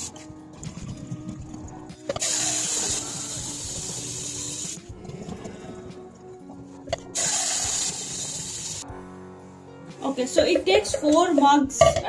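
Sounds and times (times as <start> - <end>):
tap water running into a jug: 2.2 - 4.8.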